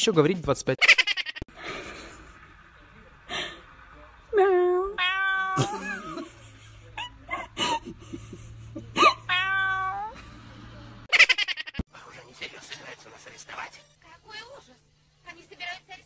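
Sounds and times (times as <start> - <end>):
cat meowing: 4.9 - 5.9, 9.1 - 10.2.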